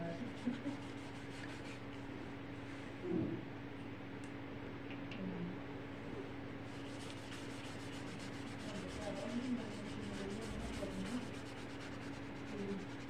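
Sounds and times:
steady low hum: 0:00.0 - 0:13.0
paintbrush scrubbing on paper: 0:00.3 - 0:01.8, 0:06.7 - 0:13.0.

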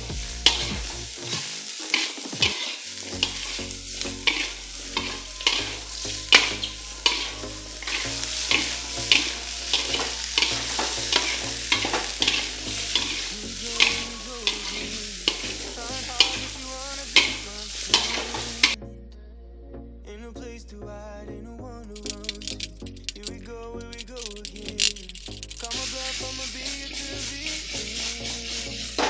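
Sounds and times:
oil sizzling: 0:00.0 - 0:18.8, 0:24.2 - 0:29.0.

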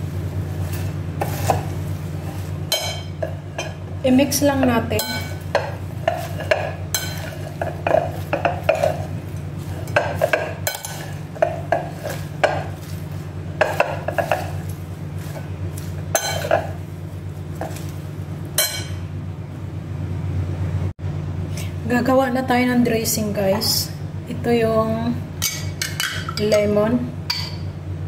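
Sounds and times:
vegetables tossed in a bowl: 0:00.0 - 0:18.9
steady low hum: 0:00.0 - 0:28.0.

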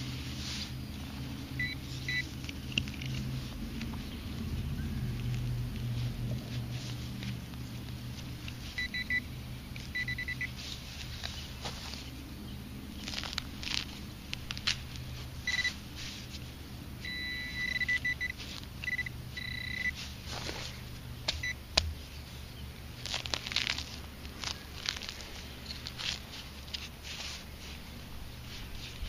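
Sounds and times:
soil and roots crackling: 0:00.0 - 0:29.0
metal detector beeping: 0:01.6 - 0:02.3, 0:08.7 - 0:10.6, 0:15.4 - 0:15.8, 0:17.0 - 0:20.0.

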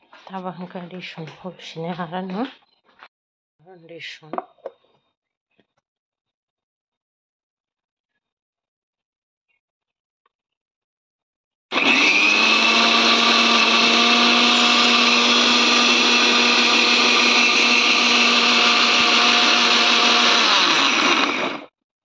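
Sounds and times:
mixer grinder motor whining: 0:11.7 - 0:21.7.

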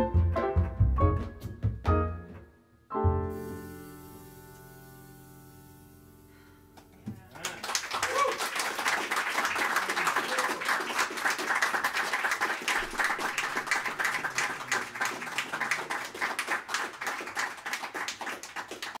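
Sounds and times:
audience applauding: 0:07.3 - 0:19.0.

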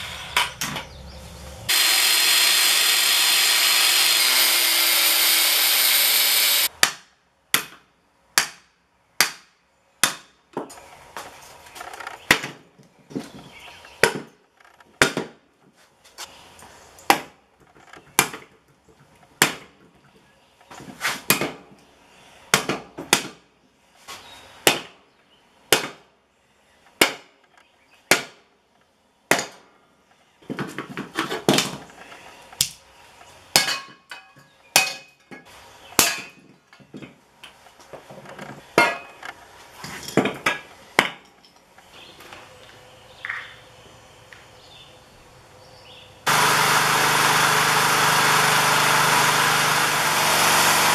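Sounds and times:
power tool cutting metal: 0:01.7 - 0:06.7, 0:46.3 - 0:50.9.

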